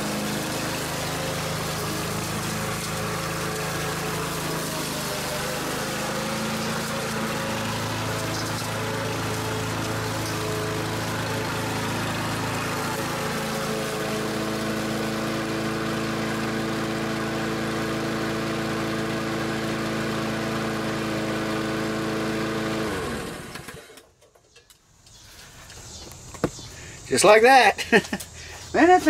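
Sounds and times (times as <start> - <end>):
engine winding down: 0.0 - 24.1
lawn mower engine running: 0.0 - 29.0.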